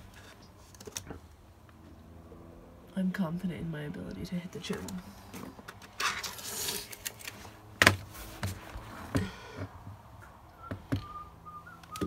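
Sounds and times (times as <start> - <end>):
faint whistled note: 10.6 - 12.0.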